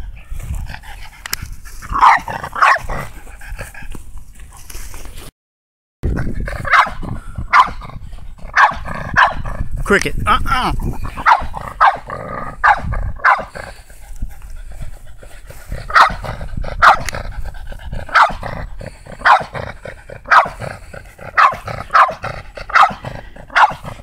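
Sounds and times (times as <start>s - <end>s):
dog barking: 2.0s - 2.9s, 6.6s - 7.8s, 8.5s - 9.4s, 11.2s - 13.5s, 15.9s - 17.1s, 18.1s - 18.5s, 19.2s - 19.6s, 20.2s - 20.6s, 21.3s - 24.0s.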